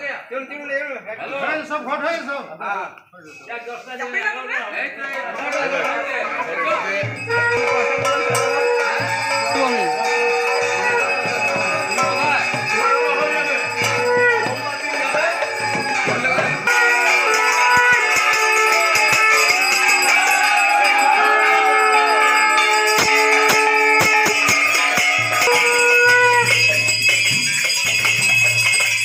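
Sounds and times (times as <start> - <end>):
metal bells ringing: 5.3 - 29.0
wavering calls: 7.0 - 20.0
gong clanging: 7.0 - 28.7.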